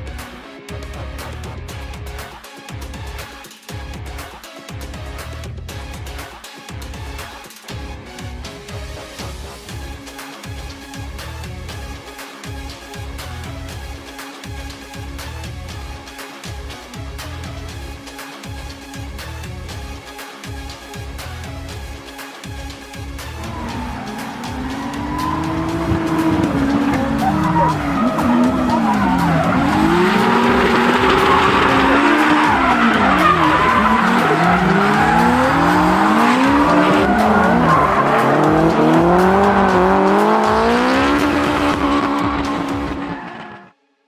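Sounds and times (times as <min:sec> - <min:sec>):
car engines revving: 0:22.9 - 0:43.7
tyres squealing and skidding: 0:23.1 - 0:43.7.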